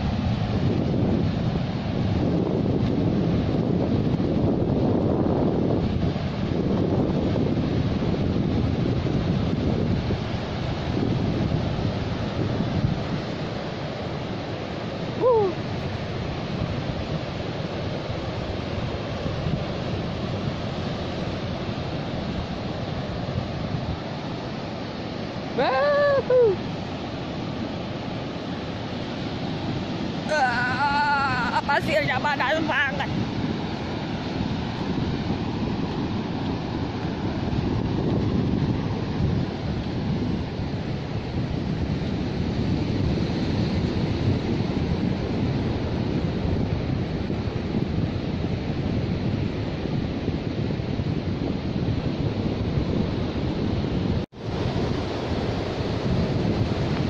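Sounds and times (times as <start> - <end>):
ocean surf on a beach: 0.0 - 57.0
wind: 0.0 - 57.0.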